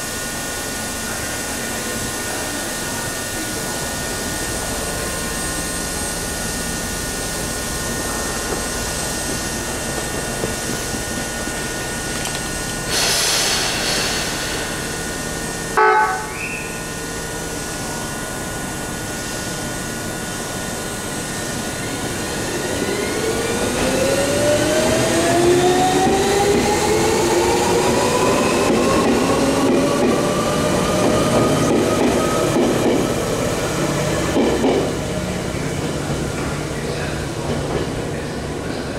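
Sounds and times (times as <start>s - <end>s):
electric train motor whine: 13.6s - 34.3s.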